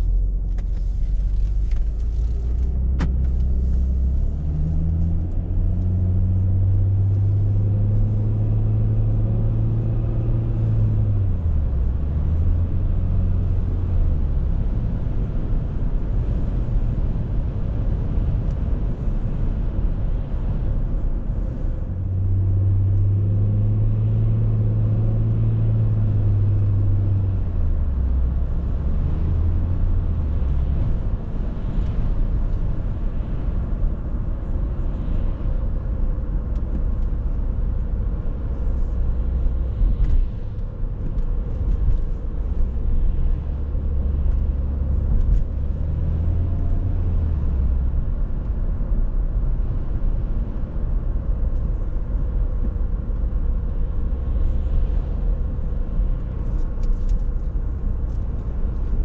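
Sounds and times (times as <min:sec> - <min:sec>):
car engine drone: 0:00.0 - 0:59.0
tyre and road rumble: 0:00.0 - 0:59.0.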